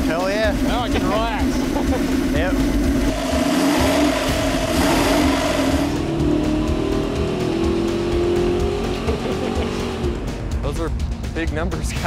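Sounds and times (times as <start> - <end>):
engine revving on dynamometer: 2.2 - 10.2.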